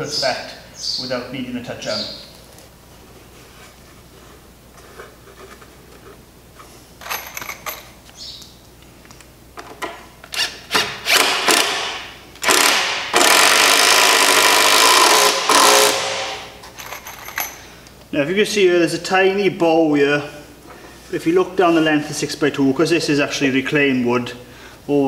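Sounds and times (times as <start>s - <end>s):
cordless drill driving screw: 10.3s - 16.4s.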